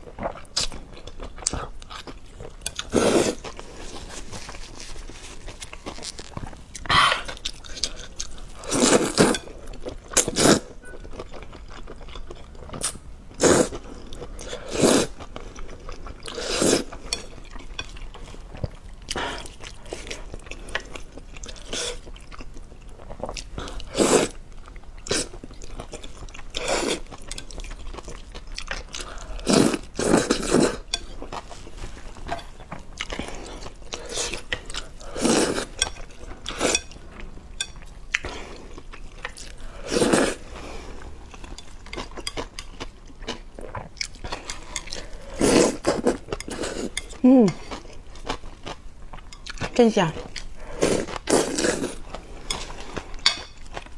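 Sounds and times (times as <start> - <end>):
person slurping noodles: 39.8 - 41.0.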